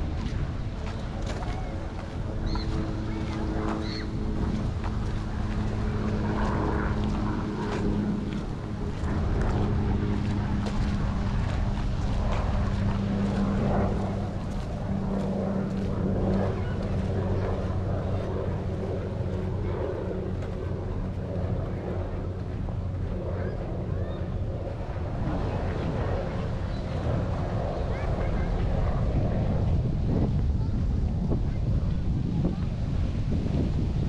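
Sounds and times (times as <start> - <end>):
low engine hum: 0.0 - 34.0.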